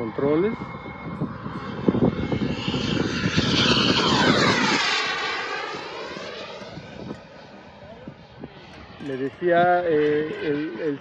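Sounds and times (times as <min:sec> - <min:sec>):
model airplane engine flying past: 0:00.0 - 0:11.0.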